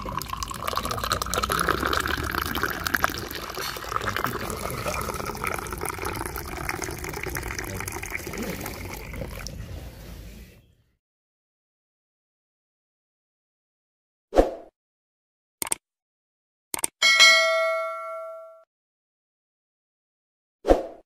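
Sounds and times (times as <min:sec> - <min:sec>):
tea pouring into glasses: 0:00.0 - 0:09.7.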